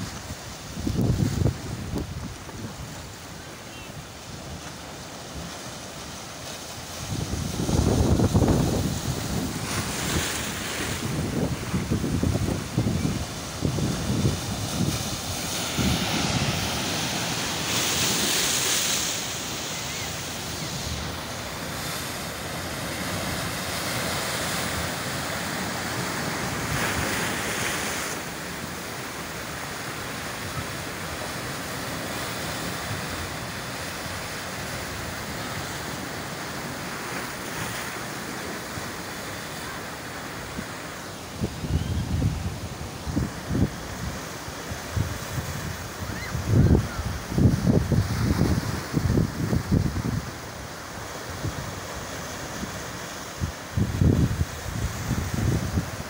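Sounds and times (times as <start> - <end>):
wind buffeting microphone: 7.1 - 17.1, 44.9 - 50.4, 53.4 - 56.0.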